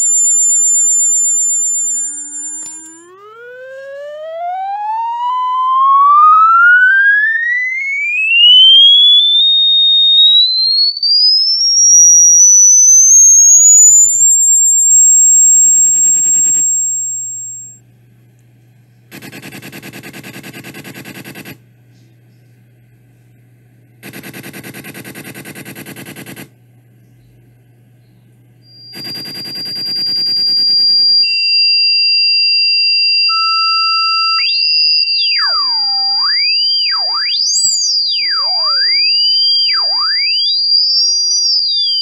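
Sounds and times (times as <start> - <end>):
electronic tone sweeping upward: 0.0 - 17.8, 33.2 - 42.0
pulsing electronic buzz: 0.0 - 17.8, 28.7 - 42.0.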